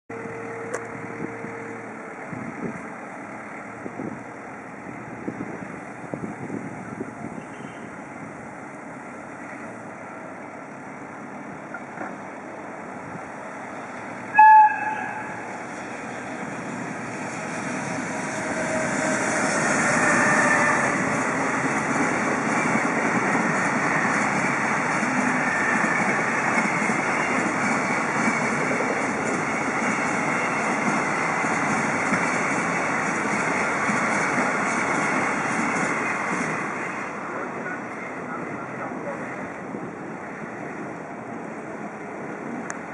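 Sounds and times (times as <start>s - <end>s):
freight train passing rumble: 0.1s - 42.9s
locomotive air whistle: 14.3s - 15.5s, 18.0s - 21.1s.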